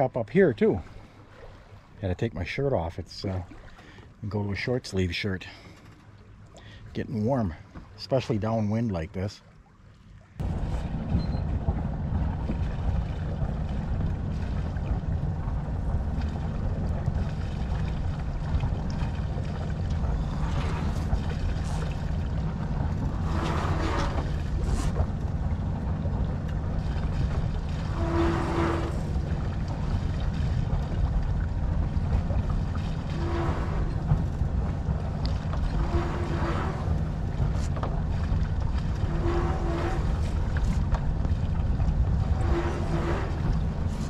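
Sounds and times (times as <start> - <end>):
water splashing along hull: 0.0 - 44.0
wind buffeting microphone: 10.4 - 44.0.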